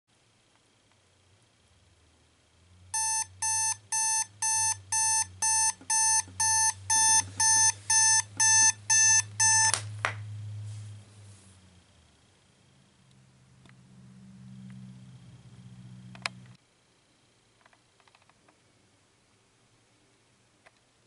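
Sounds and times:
alarm clock beeping: 3.0s - 9.8s
alarm clock button click: 3.0s - 9.8s.

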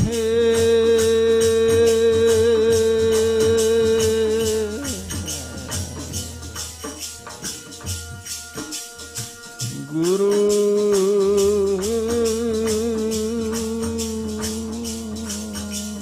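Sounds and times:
person chanting: 0.0s - 6.6s, 9.7s - 16.0s
jingling hand percussion: 0.0s - 16.0s.

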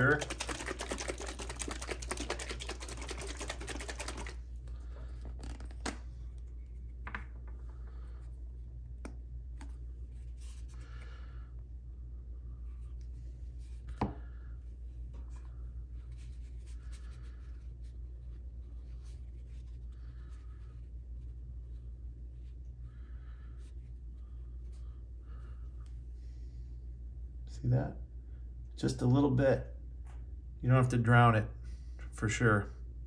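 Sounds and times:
small bottle being shaken: 0.0s - 4.6s.

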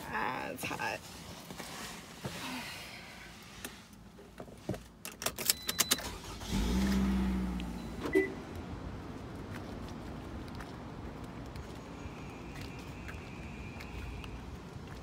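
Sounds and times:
car keys jangling: 5.0s - 7.0s.

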